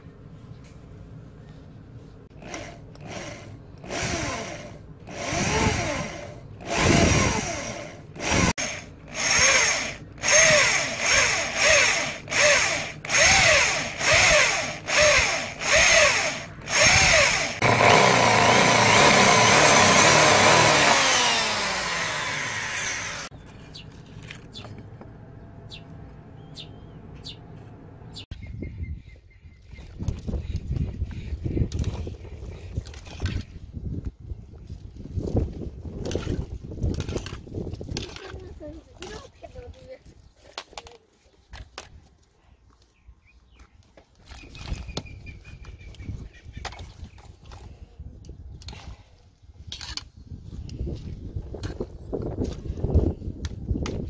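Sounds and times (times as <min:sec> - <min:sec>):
electric drill boring through steel: 0:02.4 - 0:23.3.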